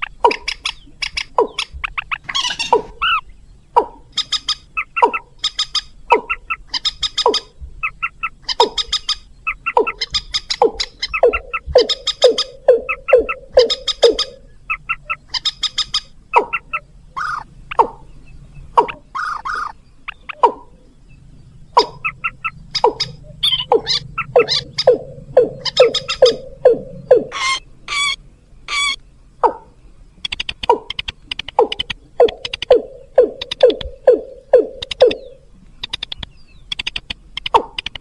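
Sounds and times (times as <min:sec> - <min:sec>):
sharp high clicking bird notes: 0:00.0 - 0:18.0, 0:18.8 - 0:20.8, 0:21.7 - 0:29.6, 0:30.2 - 0:38.0
bird calls sliding downward: 0:21.8 - 0:29.0.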